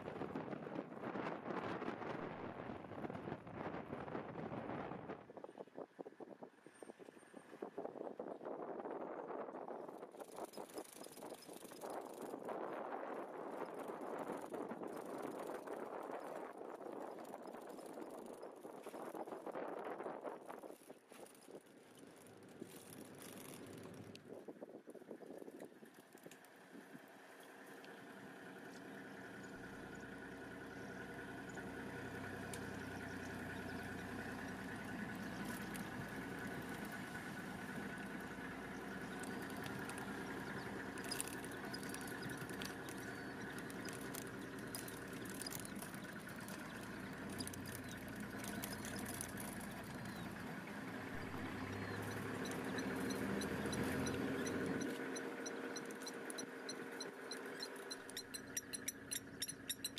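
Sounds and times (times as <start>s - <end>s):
vehicle engine idling: 0.0s - 59.9s
quick high chirps: 51.2s - 59.9s.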